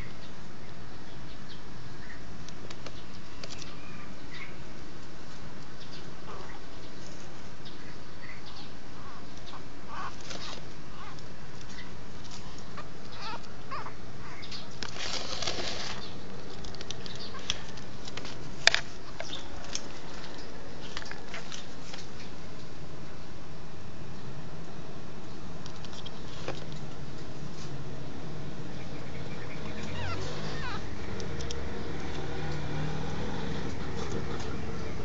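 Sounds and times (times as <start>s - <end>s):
background hiss: 0.0s - 35.0s
soft rustling: 14.6s - 22.7s.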